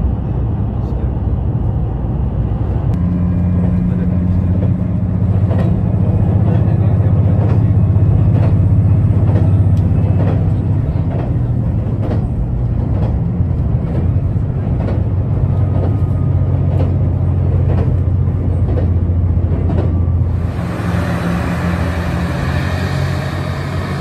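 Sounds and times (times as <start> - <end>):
train engine drone: 0.0 - 24.0
train wheels on rails: 2.6 - 24.0
clicks from the track: 9.2 - 14.2.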